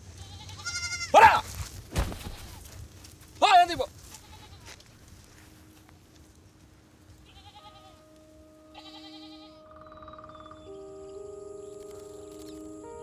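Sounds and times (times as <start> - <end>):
goats bleating: 0.2 - 1.5, 4.0 - 4.8, 7.2 - 8.1, 8.7 - 9.6.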